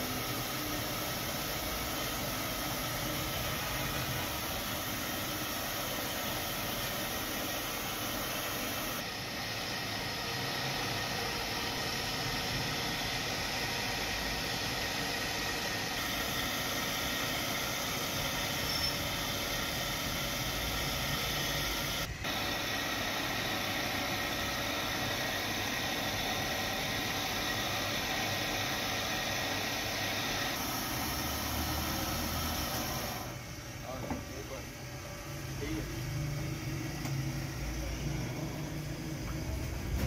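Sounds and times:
wood lathe whirring: 0:11.1 - 0:33.4.

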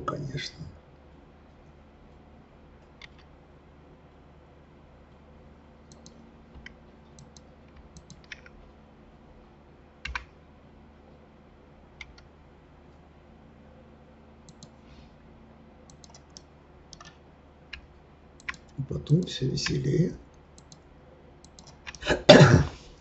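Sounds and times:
faint steady hum: 0:00.0 - 0:23.0
keyboard and mouse clicks: 0:02.9 - 0:03.3, 0:05.9 - 0:08.6, 0:10.1 - 0:10.3, 0:12.0 - 0:12.3, 0:14.5 - 0:14.8, 0:15.9 - 0:19.8, 0:20.6 - 0:20.8, 0:21.4 - 0:22.0.

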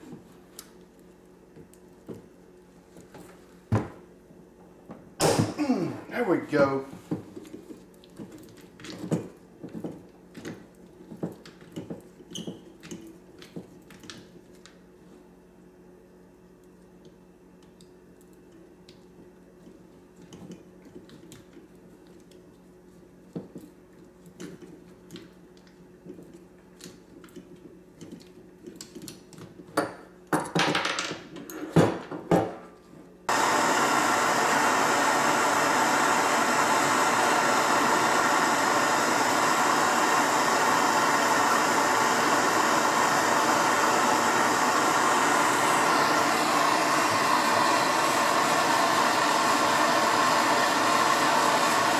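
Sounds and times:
gas torch hissing: 0:33.3 - 0:51.9.

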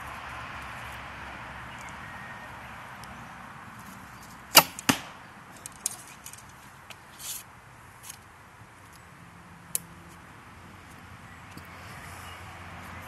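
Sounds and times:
arrow striking target: 0:04.5 - 0:05.3.

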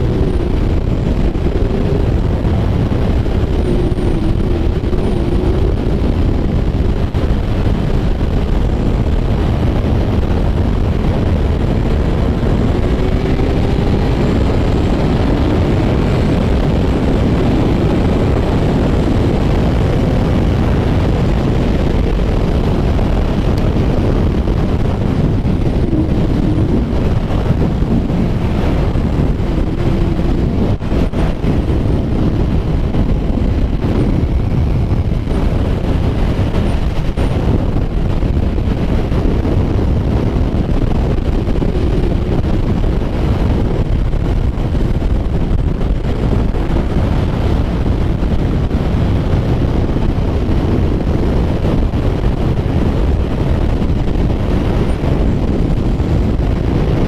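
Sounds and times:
motorcycle engine running: 0:00.0 - 0:57.0
wind noise on microphone: 0:00.0 - 0:57.0.

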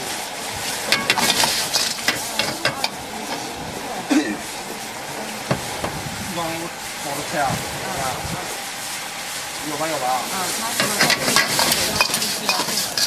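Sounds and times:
food sizzling: 0:00.0 - 0:13.0
ladle clacking against wok: 0:00.8 - 0:03.4, 0:10.8 - 0:13.0.

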